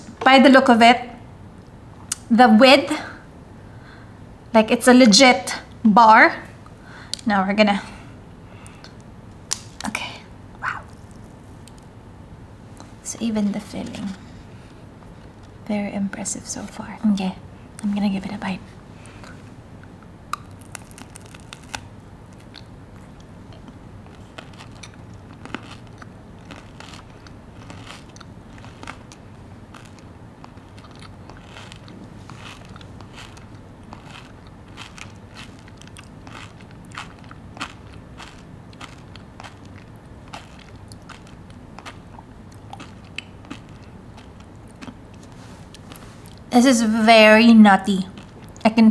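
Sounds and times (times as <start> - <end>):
chewing crunchy chocolate: 10.7 - 11.9, 19.0 - 46.5, 48.0 - 48.7.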